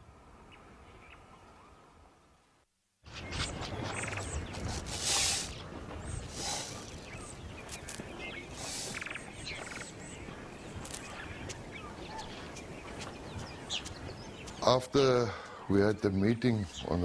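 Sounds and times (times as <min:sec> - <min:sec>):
small birds chirping: 0:03.1 - 0:17.0
brief hissing rushes: 0:04.7 - 0:05.6, 0:06.3 - 0:06.9, 0:08.6 - 0:09.1.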